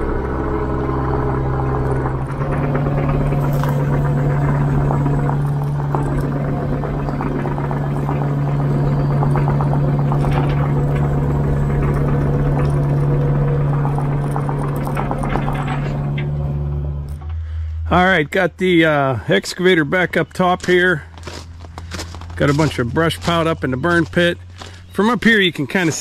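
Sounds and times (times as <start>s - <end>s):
clicking and clattering tracks: 0.0s - 17.4s
excavator diesel engine running: 0.0s - 26.0s.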